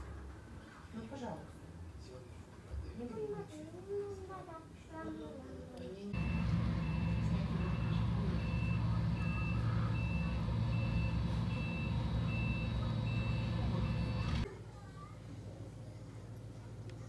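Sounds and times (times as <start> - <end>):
reversing alarm beeps: 6.2 - 14.4
engine low hum: 6.2 - 14.5.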